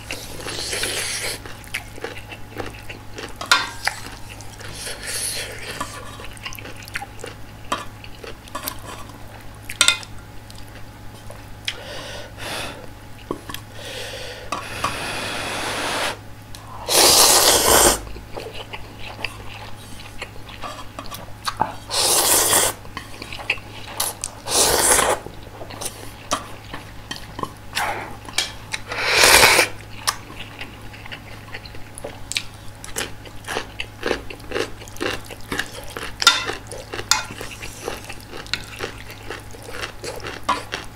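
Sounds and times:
loud noodle slurps: 0:16.8 - 0:18.1, 0:21.9 - 0:22.8, 0:24.4 - 0:25.2, 0:28.9 - 0:29.8
wet chewing: 0:17.2 - 0:40.9.

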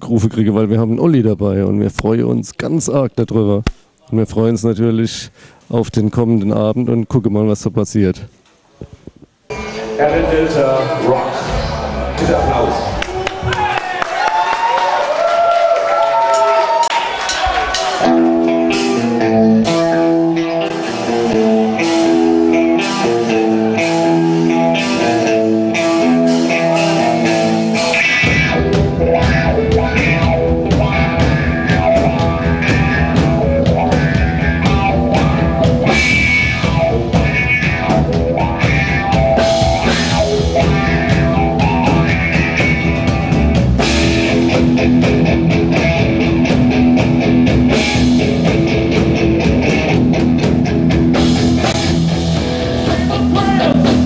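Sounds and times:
bass guitar: 0:11.3 - 0:13.7, 0:17.5 - 0:54.0
drum kit: 0:16.4 - 0:54.0
electric guitar riff: 0:17.2 - 0:54.0.

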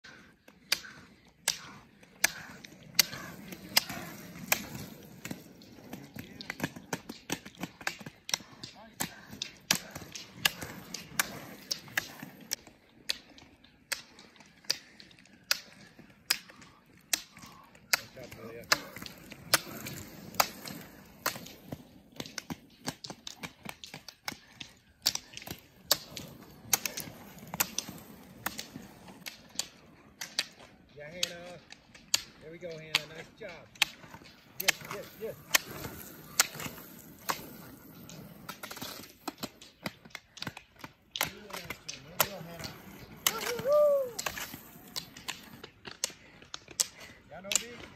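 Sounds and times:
roller ski wheels rolling: 0:00.0 - 0:47.9
ski pole tips clicking on asphalt: 0:00.1 - 0:47.9.

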